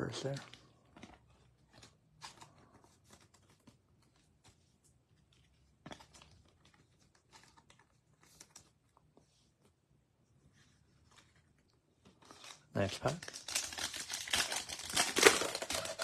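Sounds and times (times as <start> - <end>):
trading cards and wrappers rustling: 0.0 - 9.8, 10.5 - 16.0.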